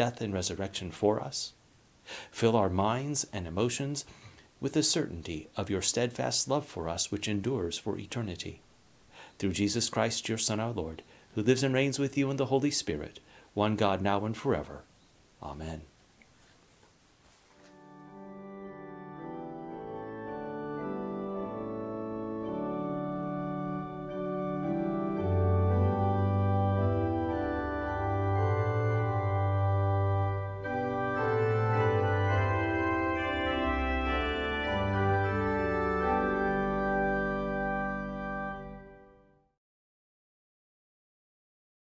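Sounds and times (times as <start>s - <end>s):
organ playing slow chords: 17.7s - 39.5s
deep organ bass notes: 17.8s - 39.4s.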